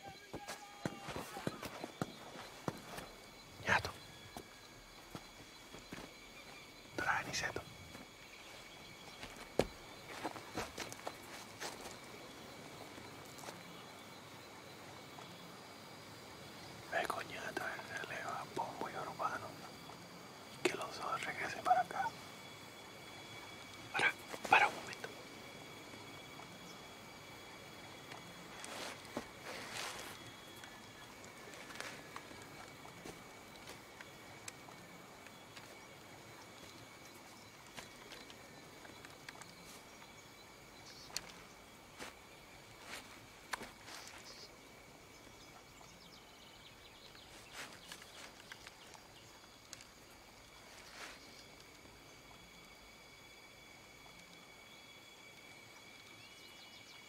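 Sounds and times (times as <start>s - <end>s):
high insect drone: 0.0s - 57.0s
faint rustles: 28.5s - 34.6s.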